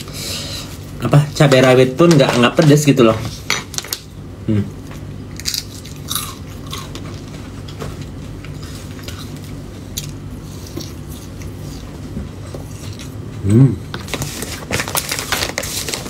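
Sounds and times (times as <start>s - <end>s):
steady low hum: 0.0s - 16.0s
person chewing food: 5.4s - 7.1s, 8.4s - 13.2s.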